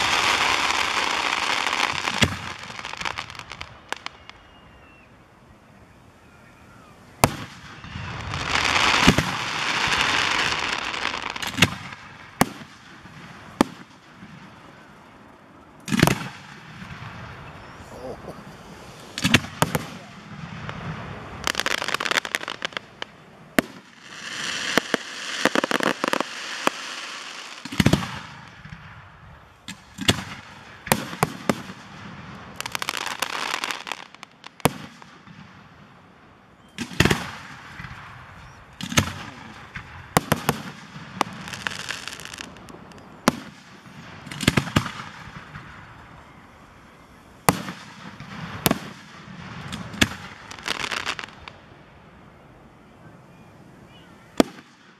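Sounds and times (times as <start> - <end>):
firework crackling: 0.0 - 54.9.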